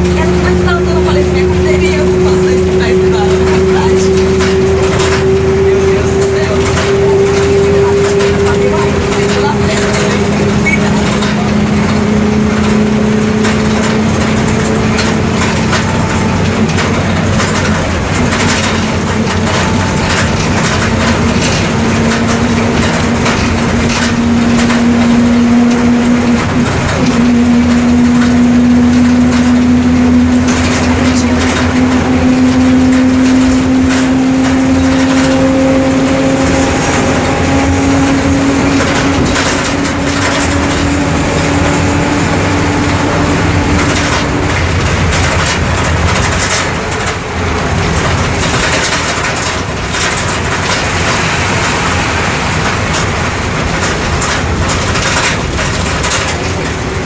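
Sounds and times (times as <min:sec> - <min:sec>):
bus diesel engine running: 0:00.0 - 0:57.0
high whine: 0:00.0 - 0:57.0
rattles: 0:00.0 - 0:57.0.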